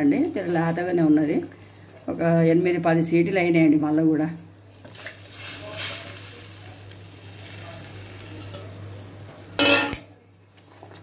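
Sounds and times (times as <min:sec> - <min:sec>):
gravy sizzling: 0:00.0 - 0:11.0.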